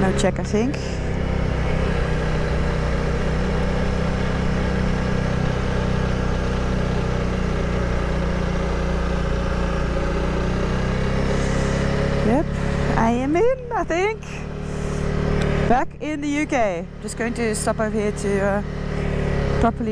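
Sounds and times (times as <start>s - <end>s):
motorcycle engine at low revs: 0.0s - 19.9s.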